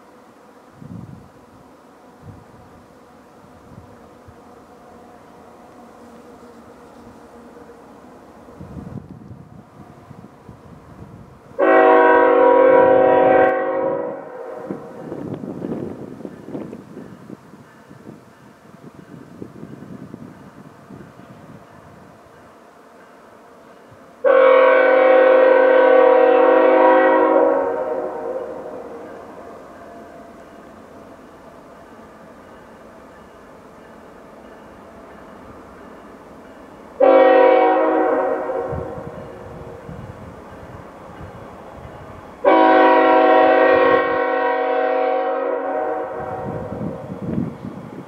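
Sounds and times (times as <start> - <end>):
locomotive air horn blast: 11.6 - 15.2, 24.2 - 29.6, 37.0 - 39.4, 42.4 - 47.0.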